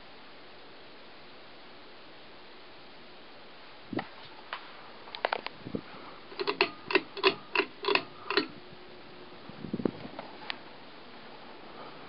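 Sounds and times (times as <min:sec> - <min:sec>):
ceiling fan running: 0:01.6 - 0:12.0
sharp ringing clicks: 0:06.3 - 0:08.5.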